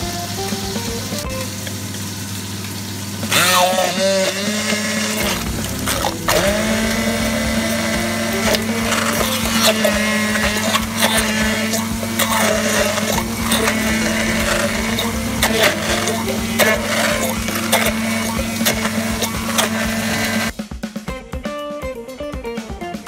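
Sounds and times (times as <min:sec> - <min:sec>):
small electric motor humming: 0:03.2 - 0:20.5.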